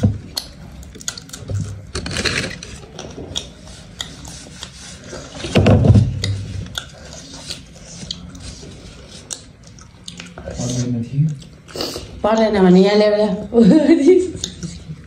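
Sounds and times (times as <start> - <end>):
chewing and tearing meat: 0.2 - 5.4.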